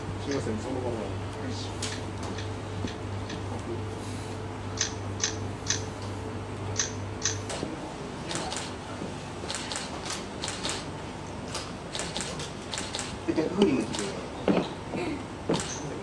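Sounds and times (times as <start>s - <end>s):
steady low hum: 0.0s - 16.0s
camera shutter firing: 9.5s - 10.8s, 11.9s - 13.2s.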